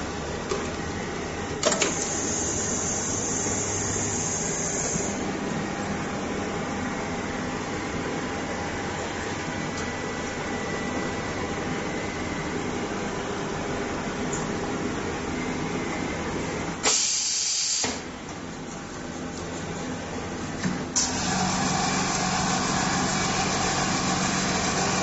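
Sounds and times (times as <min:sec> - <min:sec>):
machine humming: 0:21.0 - 0:25.0.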